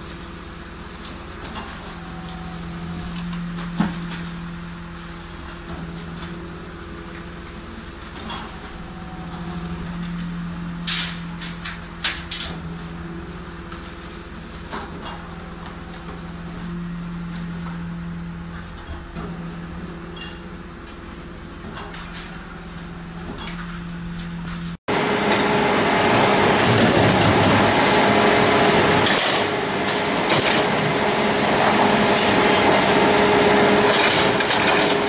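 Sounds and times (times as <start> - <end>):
garbage truck engine idling: 0.0 - 35.0
bags thrown into hopper: 25.0 - 35.0
wire cages rattling: 25.8 - 35.0.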